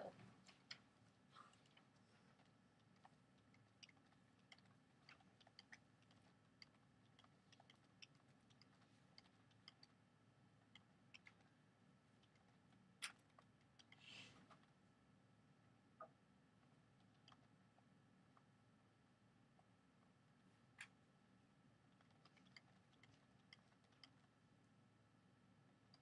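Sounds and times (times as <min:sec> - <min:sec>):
faint small clicks: 0:25.8 - 0:26.0.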